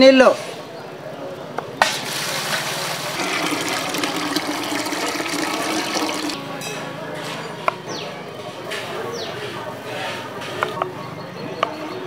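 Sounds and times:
water pouring into metal vessel: 2.0s - 6.4s.

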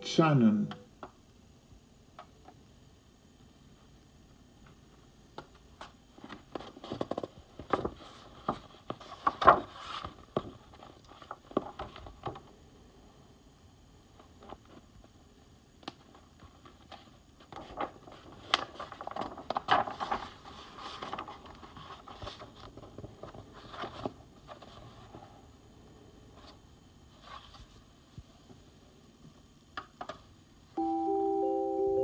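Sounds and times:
book pages handled: 5.4s - 12.5s, 15.9s - 25.3s
page turning rustle: 5.8s - 12.5s, 15.9s - 25.3s, 26.4s - 27.9s.

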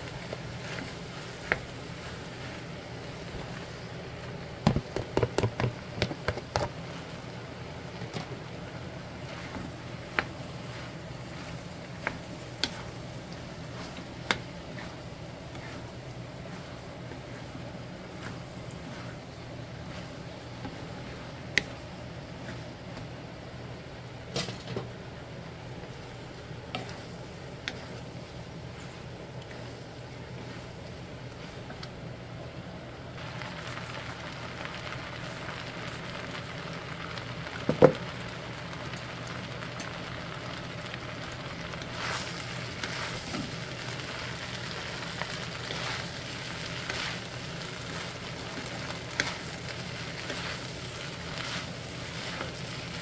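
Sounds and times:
low background hum: 0.0s - 53.0s
wooden spatula tapping pan: 4.6s - 6.7s
spatula scraping pan: 9.2s - 21.8s, 26.0s - 31.7s, 41.9s - 53.0s.

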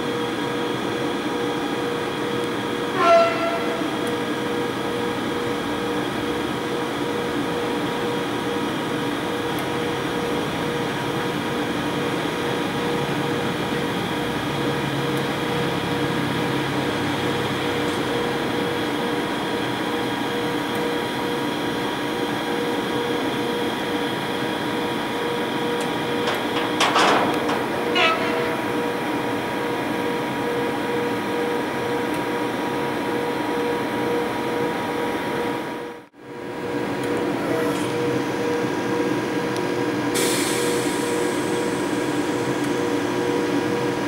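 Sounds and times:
locomotive electrical hum: 0.0s - 44.0s
short falling squeal: 3.0s - 4.0s, 27.9s - 29.0s.

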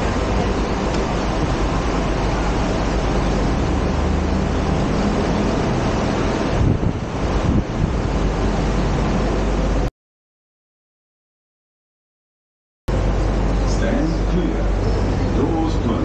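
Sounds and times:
wind rumble on microphone: 0.0s - 9.9s.

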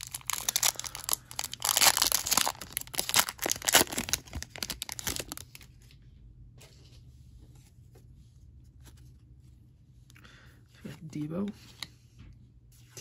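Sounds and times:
wrapper being torn open: 0.0s - 5.6s.

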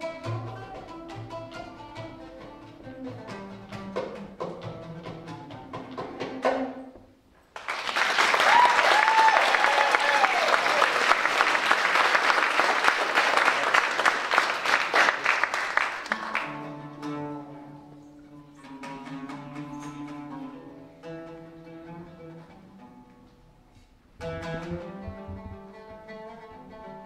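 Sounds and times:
oud playing: 0.0s - 7.2s, 16.0s - 27.0s
audience applauding: 7.5s - 16.6s.

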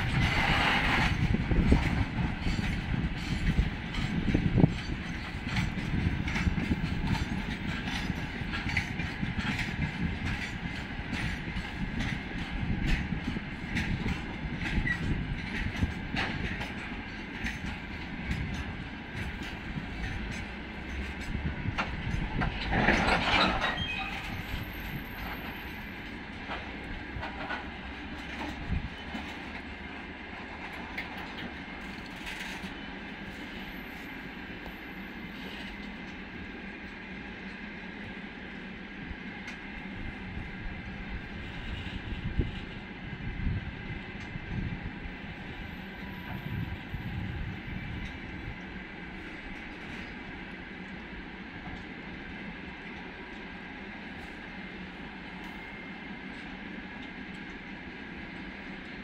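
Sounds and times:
wheels clicking over rail joints: 0.0s - 36.4s
freight train rolling past: 0.0s - 59.0s.

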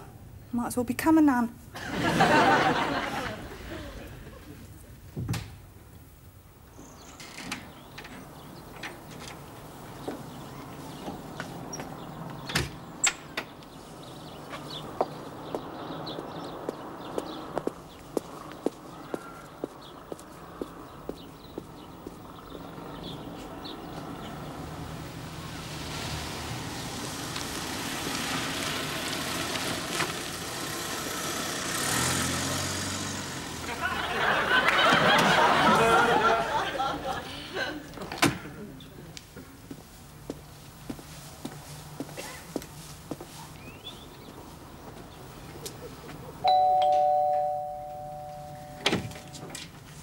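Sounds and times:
doorbell chime: 46.4s - 49.4s.

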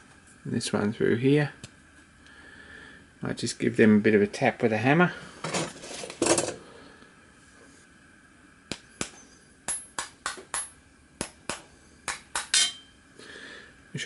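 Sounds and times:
hammer tapping steel punches: 8.7s - 12.9s.

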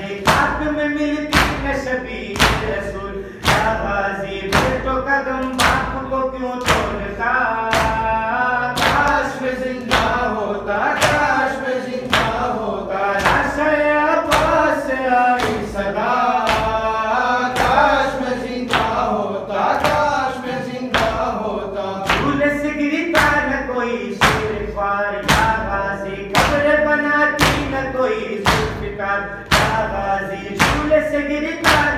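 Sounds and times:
man chanting through a microphone: 0.0s - 31.9s
chest-beating slaps: 3.4s - 3.8s, 29.4s - 29.8s.

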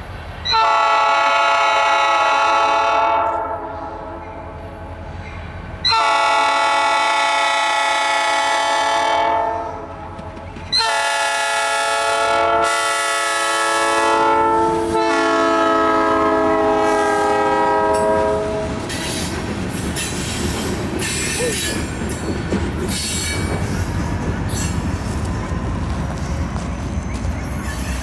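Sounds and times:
train rumbling: 0.0s - 28.0s
locomotive air horn blasts: 0.5s - 4.6s, 5.8s - 10.0s, 10.7s - 18.8s.

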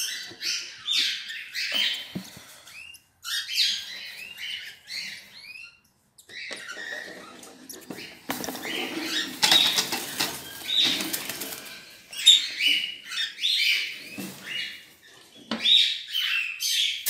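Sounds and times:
bird high-pitched calls: 0.0s - 17.0s
bird wings flapping in cage: 8.3s - 11.8s.

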